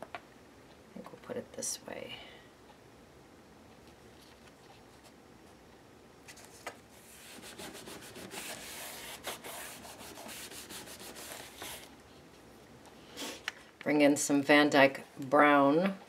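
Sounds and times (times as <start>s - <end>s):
hands rubbing paper patch: 6.4s - 12.0s.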